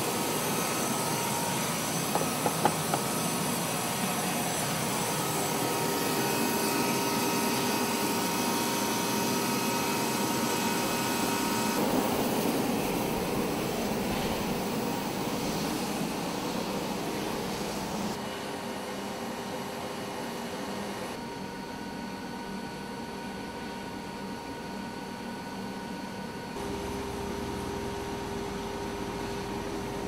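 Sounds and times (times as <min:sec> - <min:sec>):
turbine whining: 0:00.0 - 0:18.2.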